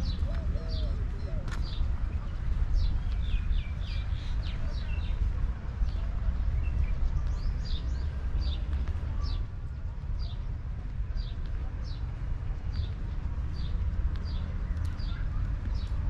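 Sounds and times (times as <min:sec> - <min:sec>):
small birds chirping: 0:00.0 - 0:09.5, 0:10.2 - 0:16.0
steady low rumble: 0:00.0 - 0:16.0.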